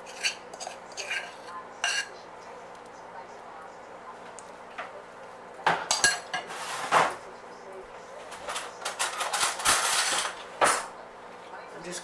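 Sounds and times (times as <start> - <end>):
metal spoons and bowl clattering: 5.8 - 6.6, 8.4 - 10.8.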